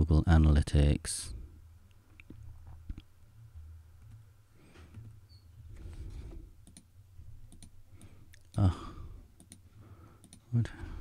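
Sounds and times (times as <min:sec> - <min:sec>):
low steady hum: 0:00.0 - 0:11.0
keyboard and mouse clicks: 0:06.6 - 0:06.9, 0:07.5 - 0:08.6, 0:09.4 - 0:09.6, 0:10.2 - 0:10.4.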